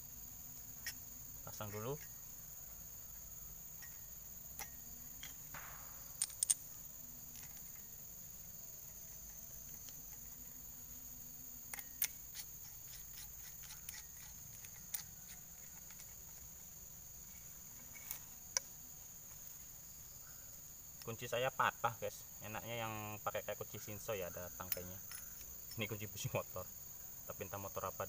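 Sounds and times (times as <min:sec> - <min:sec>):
crickets trilling: 0:00.0 - 0:28.0.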